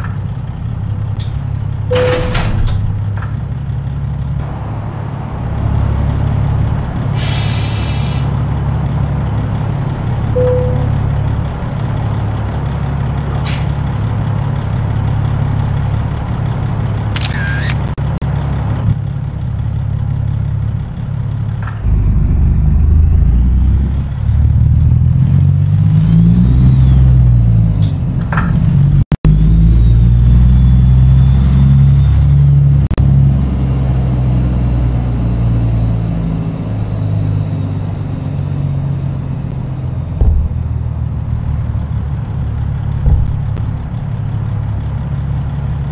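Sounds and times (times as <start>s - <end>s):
diesel truck engine running: 0.0s - 45.9s
high whine: 21.8s - 25.3s.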